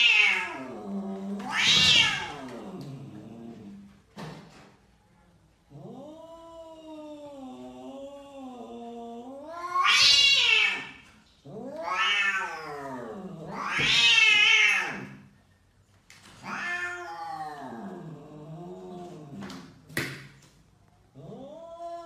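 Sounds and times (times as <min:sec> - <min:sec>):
cat yowling angrily: 0:00.0 - 0:00.8, 0:01.4 - 0:02.8, 0:09.4 - 0:15.2, 0:16.4 - 0:18.1.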